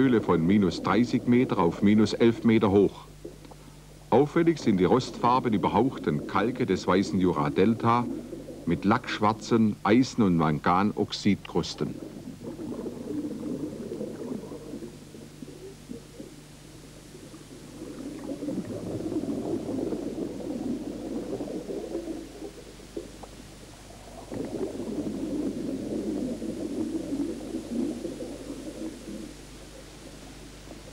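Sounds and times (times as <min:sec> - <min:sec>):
steady low hum: 0:00.0 - 0:30.9
underwater air bubbling: 0:00.0 - 0:30.9.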